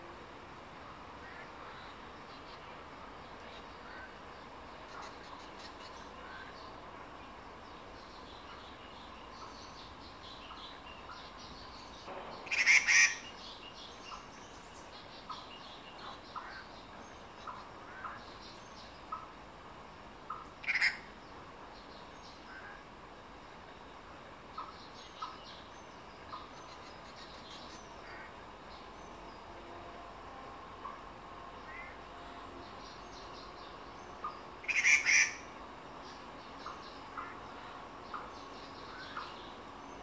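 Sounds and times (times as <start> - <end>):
birds chirping: 1.2 - 19.4, 32.6 - 40.0
loud harsh bird calls: 12.3 - 13.4, 20.3 - 21.1, 34.6 - 35.5.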